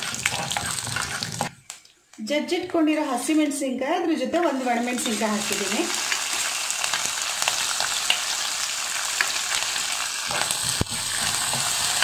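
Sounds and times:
spoon scraping pan: 0:00.0 - 0:01.5
oil sizzling and crackling: 0:00.0 - 0:01.8, 0:04.5 - 0:12.0.

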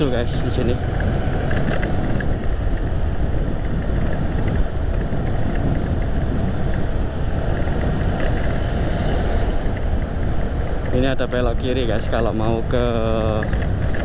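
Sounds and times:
wind and road noise: 0:00.0 - 0:14.0.

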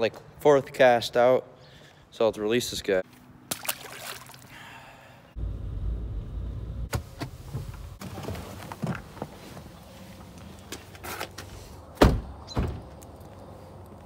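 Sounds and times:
water splashing and dripping: 0:03.5 - 0:04.7
car engine rumble: 0:05.4 - 0:14.0.

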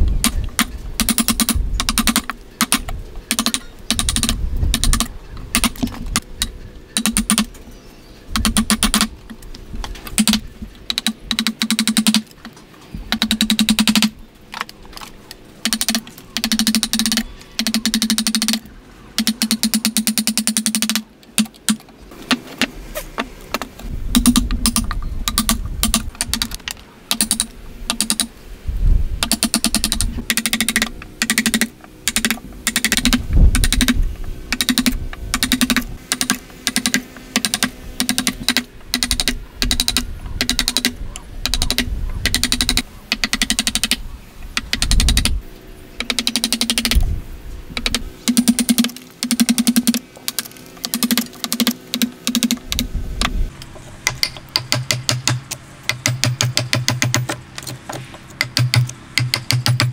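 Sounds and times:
mallet striking wood chisel: 0:54.0 - 0:59.9.

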